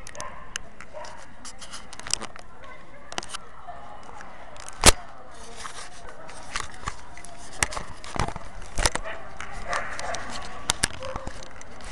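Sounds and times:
background murmur: 0.0s - 11.9s
camera handling clicks and knocks: 6.5s - 11.9s.

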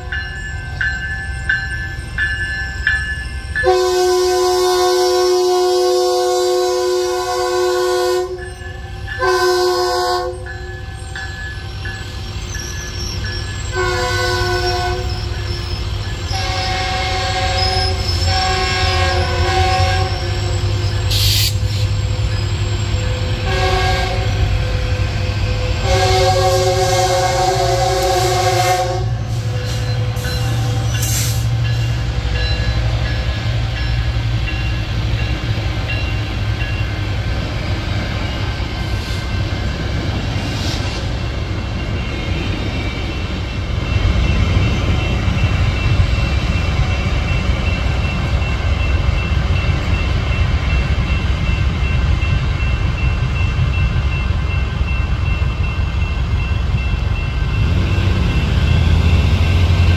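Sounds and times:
crossing bell ringing: 0.0s - 6.0s, 6.7s - 40.5s, 41.1s - 59.9s
train cars rumbling and clattering: 0.0s - 59.9s
train horn: 3.6s - 8.6s, 9.2s - 10.8s, 13.7s - 15.2s, 16.3s - 21.8s, 23.2s - 31.5s.

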